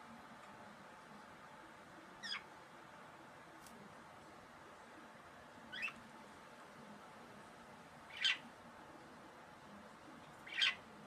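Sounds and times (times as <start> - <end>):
budgerigars chirping: 5.7 - 6.0, 8.1 - 8.4, 10.5 - 10.8.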